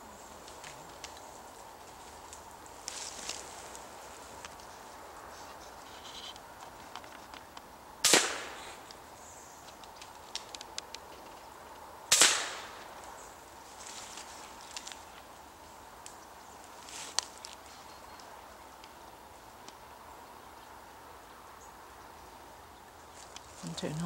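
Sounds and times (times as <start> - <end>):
gunshots with echo: 8.0 - 8.8, 12.1 - 12.8.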